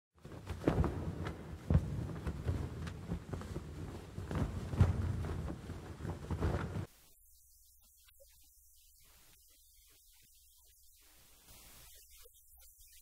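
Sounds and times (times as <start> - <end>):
cloth flag flapping: 0.2 - 6.9
fabric snapping: 0.2 - 6.9.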